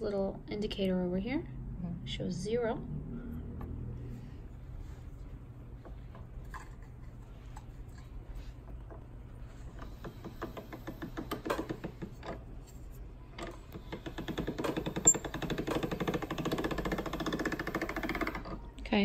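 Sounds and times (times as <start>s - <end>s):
pasta machine rollers clattering: 8.9s - 12.6s, 13.3s - 18.7s
pasta machine clicks: 9.7s - 12.4s, 13.4s - 18.6s.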